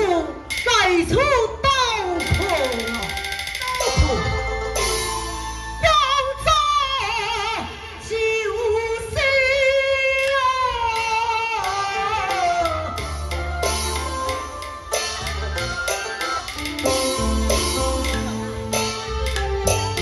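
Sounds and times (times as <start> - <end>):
instrumental accompaniment: 2.0 - 7.4, 11.6 - 20.0
woman singing opera into microphone: 5.8 - 13.0.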